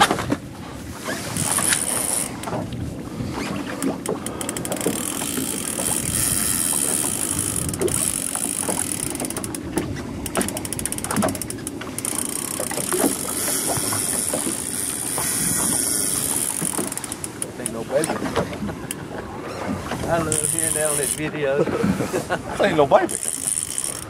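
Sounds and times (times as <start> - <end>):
water noise: 0.0 - 24.0
wind buffeting microphone: 0.0 - 24.0
fishing reel clicking: 1.2 - 2.6, 3.8 - 18.2, 20.1 - 21.3, 23.0 - 24.0.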